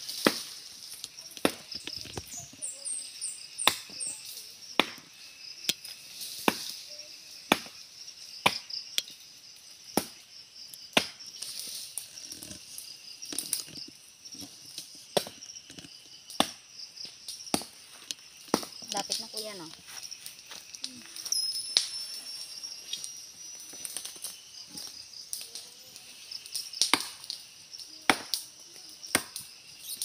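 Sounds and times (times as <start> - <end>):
insects buzzing: 0.0 - 30.0
machete chopping tree trunk: 0.2 - 0.6, 1.4 - 1.9, 3.6 - 4.1, 4.7 - 5.1, 6.4 - 6.8, 7.4 - 7.8, 8.4 - 8.8, 10.9 - 11.3, 16.2 - 16.7, 18.5 - 18.8, 26.8 - 27.2, 28.1 - 28.4, 29.1 - 29.4.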